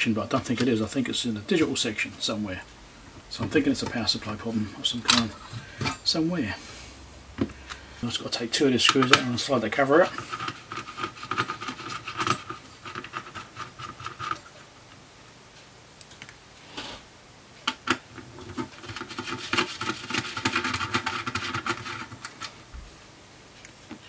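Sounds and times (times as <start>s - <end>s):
screwdriver clicking and scraping: 10.0s - 14.4s.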